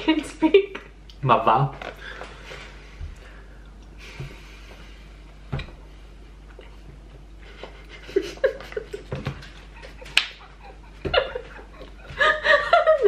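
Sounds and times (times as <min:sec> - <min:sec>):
quiet laughter: 0:06.7 - 0:13.0.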